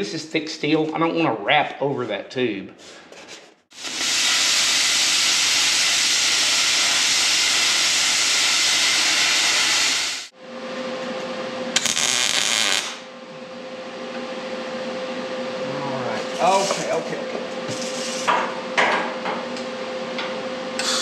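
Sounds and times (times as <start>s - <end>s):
plasma cutter hissing: 3.8s - 10.3s
steady hum: 9.4s - 21.0s.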